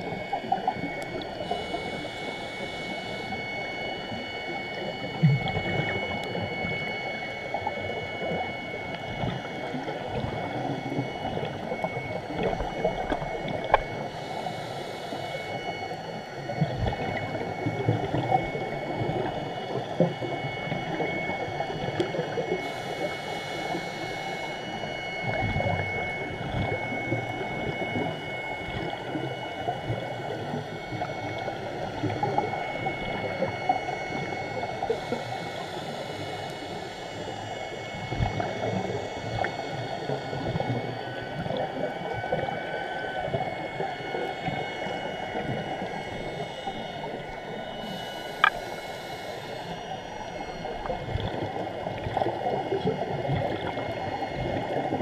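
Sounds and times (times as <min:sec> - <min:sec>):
faint high whine: 0:00.0 - 0:55.0
underwater rushing noise: 0:00.0 - 0:55.0
sharp click: 0:48.4 - 0:48.6.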